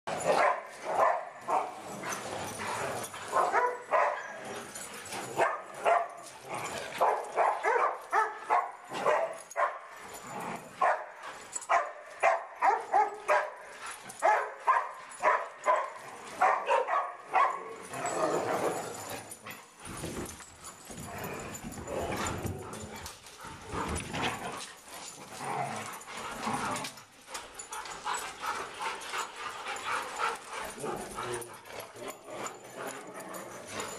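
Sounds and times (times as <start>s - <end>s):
dogs barking during play: 0.1s - 19.4s.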